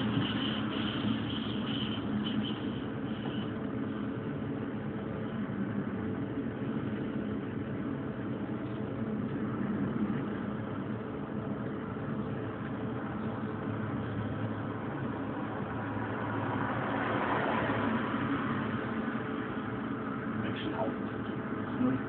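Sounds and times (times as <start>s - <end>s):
faint high whine: 0.0s - 22.0s
train wheels rolling on track: 0.0s - 22.0s.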